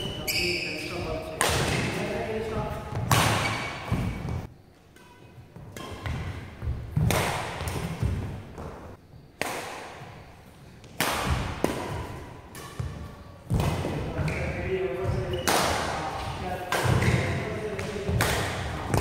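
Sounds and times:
racket hitting shuttlecock: 1.3s - 8.8s, 9.4s - 10.2s, 10.8s - 14.6s, 15.3s - 19.0s
footsteps on indoor court: 2.1s - 9.3s.

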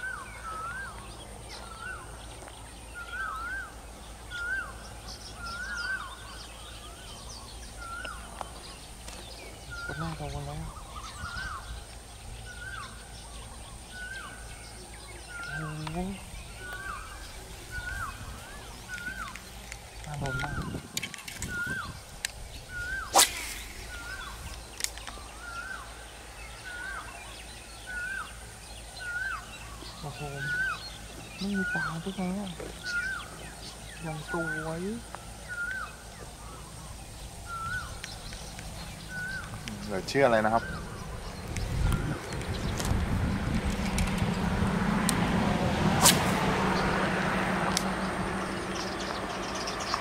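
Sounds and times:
bird whistled call: 0.0s - 2.1s, 2.9s - 8.8s, 9.6s - 19.4s, 21.4s - 22.0s, 22.6s - 28.4s, 29.0s - 32.2s, 32.8s - 39.6s, 40.4s - 42.2s
high bird chirps: 0.0s - 43.0s
outdoor background noise: 0.0s - 50.0s
steady low background noise: 0.0s - 50.0s.

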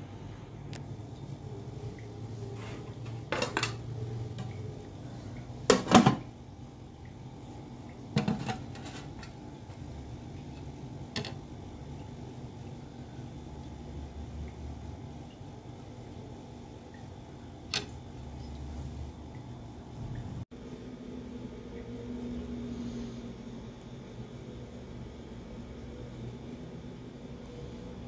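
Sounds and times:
steady low hum: 0.0s - 28.0s
metal kitchenware clattering: 3.1s - 3.8s, 8.2s - 9.4s.

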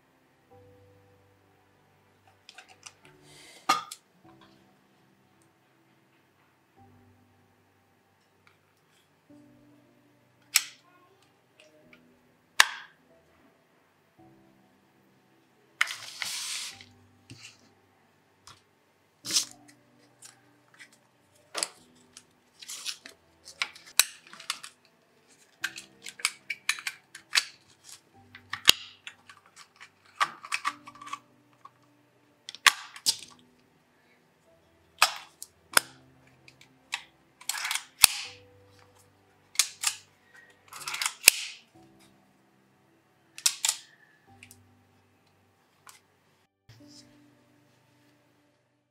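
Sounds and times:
soft background music: 0.0s - 48.9s
camera clicks and snaps: 37.4s - 38.4s, 40.7s - 41.6s, 43.4s - 43.8s.

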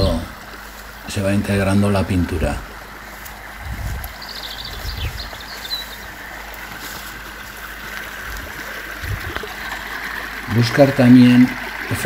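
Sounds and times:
small waterfall rushing: 0.0s - 12.0s.

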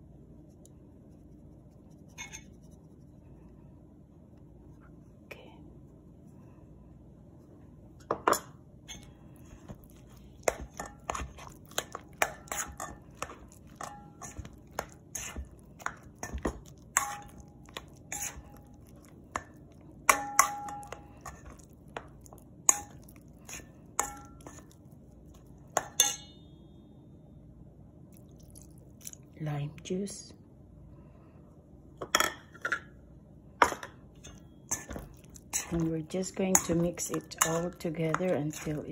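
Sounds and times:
fork clinking against metal bowl: 10.4s - 21.6s, 22.7s - 24.8s, 25.8s - 26.4s, 33.6s - 38.9s
metal bowl ringing: 26.0s - 26.8s.

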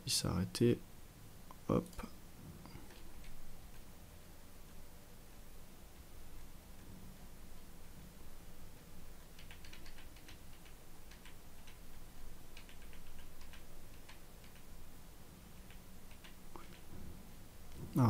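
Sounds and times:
faint steady hum: 0.0s - 18.0s
keyboard keys clicking: 9.3s - 11.8s, 12.5s - 14.7s.

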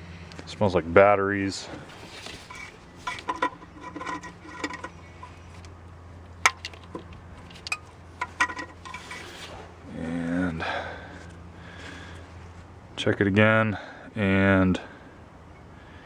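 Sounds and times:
steady low hum: 0.0s - 16.0s
rag rubbing on hoses: 1.9s - 5.5s, 8.2s - 9.8s.

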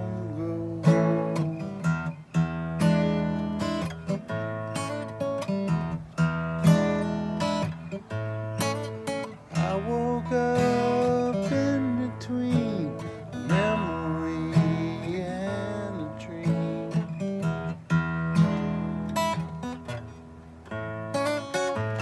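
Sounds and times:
man singing: 0.0s - 2.1s, 9.5s - 17.3s
acoustic guitar strumming: 0.0s - 22.0s.

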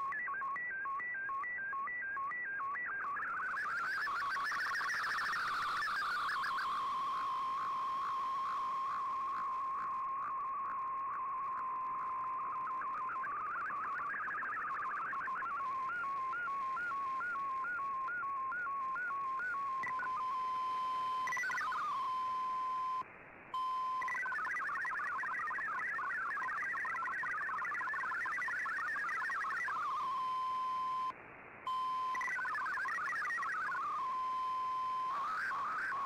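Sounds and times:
radio digital data tones: 0.0s - 23.0s, 23.6s - 31.1s, 31.7s - 36.0s
radio background hiss: 32.0s - 36.0s.

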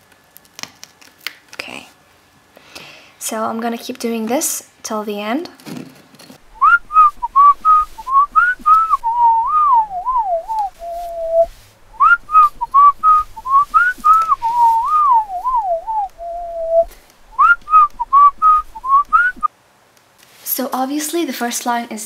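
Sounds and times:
whistled tune: 6.6s - 19.5s.

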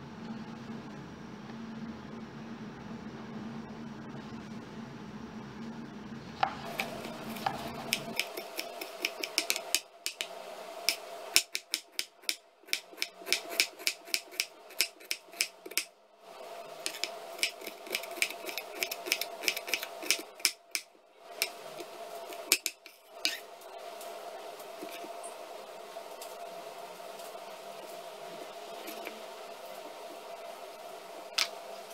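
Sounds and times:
steady hum: 0.0s - 31.9s
knife chopping on wooden board: 6.4s - 10.2s, 16.8s - 20.6s.

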